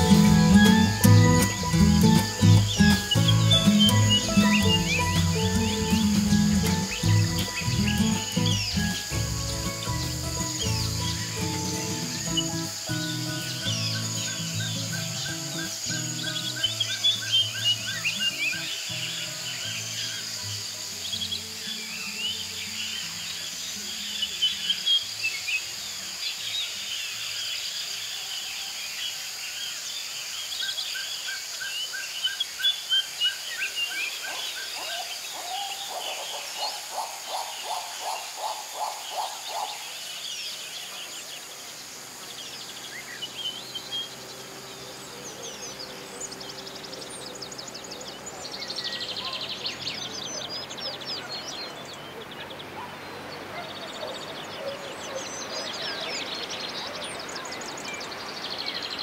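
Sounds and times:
high-pitched drone: 0.0 - 17.2
lower bird calls: 0.0 - 25.5, 30.6 - 59.0
birds chirping and trilling: 0.0 - 59.0.

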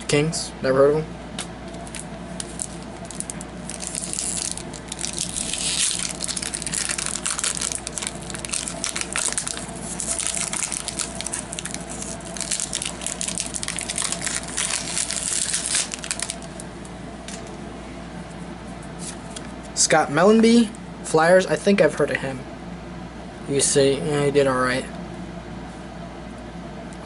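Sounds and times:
wrapper crinkling and tearing: 1.8 - 16.6.

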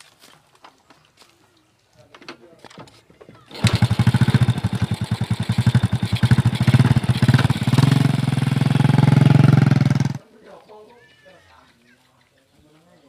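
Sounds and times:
motorcycle kick-start: 2.8 - 10.2
motorcycle engine running: 3.4 - 10.2.

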